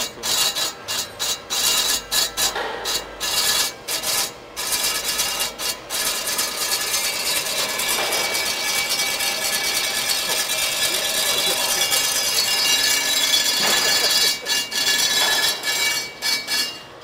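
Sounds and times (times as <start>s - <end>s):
steel rod scraping through rollers: 0.0s - 17.0s
faint metallic ringing: 6.5s - 17.0s.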